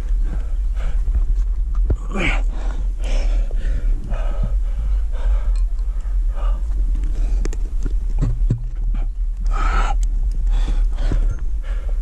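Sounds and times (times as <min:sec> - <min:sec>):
heavy breathing: 0:00.0 - 0:07.8, 0:08.8 - 0:12.0.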